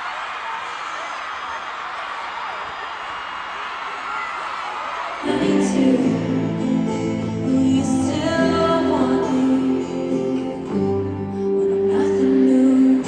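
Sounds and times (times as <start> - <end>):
slow song with guitars: 5.2 - 13.0.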